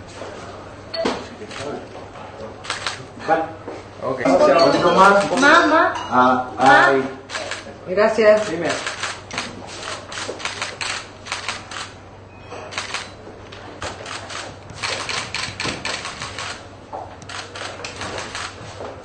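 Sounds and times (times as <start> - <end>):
camera shutters clicking: 2.6 - 3.0, 5.1 - 5.5, 7.3 - 7.7, 8.3 - 11.9, 12.7 - 13.2, 13.8 - 16.6, 17.2 - 18.6.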